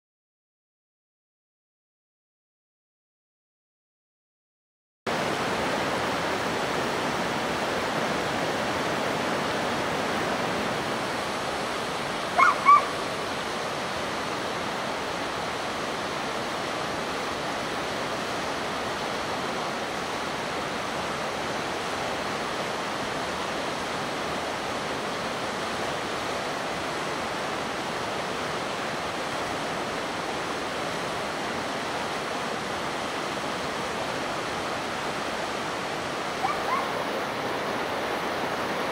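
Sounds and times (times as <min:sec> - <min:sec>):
river rushing: 0:05.1 - 0:38.9
short high-pitched calls: 0:12.4 - 0:13.0.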